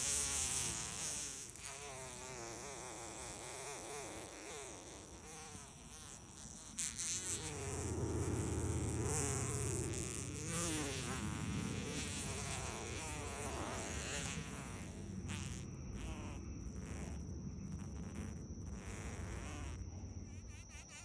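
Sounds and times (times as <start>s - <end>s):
wasp buzzing: 0.0s - 21.0s.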